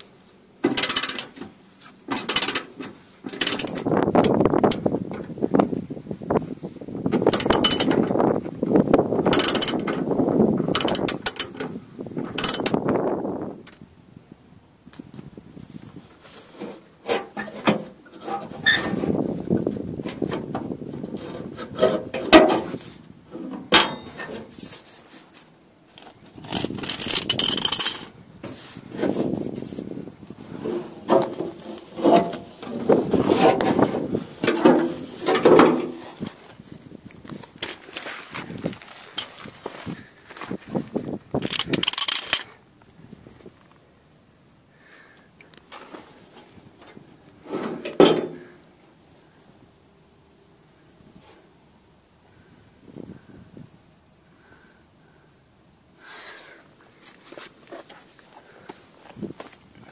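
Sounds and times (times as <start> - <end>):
socket ratchet clicking: 2.2 - 2.6, 3.4 - 4.8, 7.4 - 7.9, 9.4 - 9.9, 10.8 - 11.5, 12.4 - 12.8, 26.0 - 28.1, 41.4 - 42.5
scraping: 16.2 - 42.6, 45.7 - 48.6.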